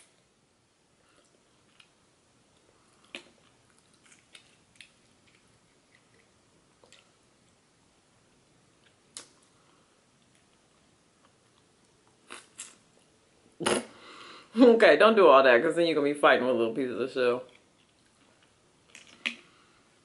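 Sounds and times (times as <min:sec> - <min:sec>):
faint chewing: 0:01.0 - 0:07.6, 0:08.3 - 0:13.2, 0:17.4 - 0:19.8.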